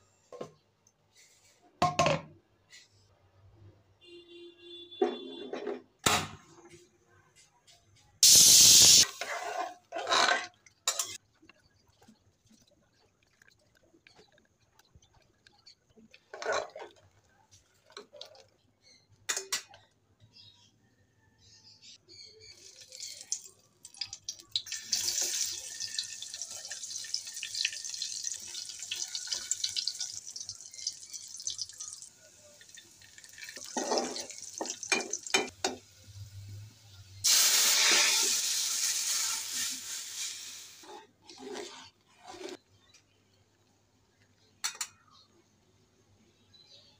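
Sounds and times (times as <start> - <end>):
food sizzling in hot oil: 8.2 - 9.2, 22.5 - 41.0.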